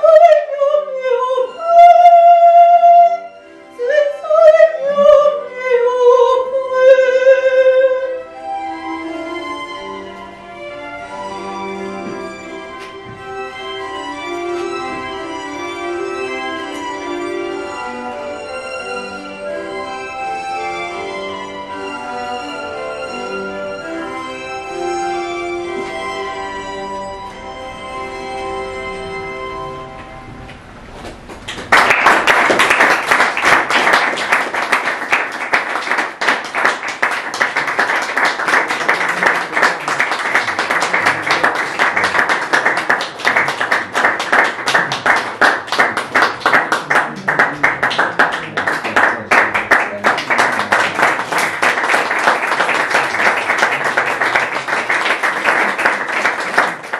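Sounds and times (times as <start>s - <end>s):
small audience applauding: 31.0s - 56.9s.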